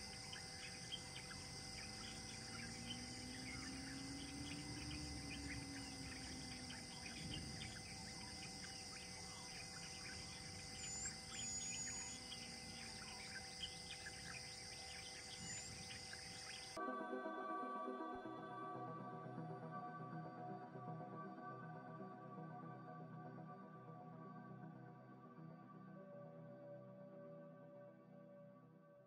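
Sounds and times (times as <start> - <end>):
bird chirps: 0.0 - 16.8
insects droning: 0.0 - 16.8
whistled bird notes: 0.0 - 16.8.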